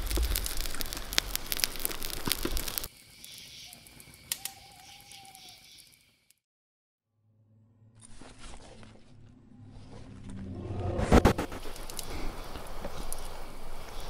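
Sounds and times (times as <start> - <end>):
campfire crackling and popping: 0.0 - 6.3, 11.2 - 14.0.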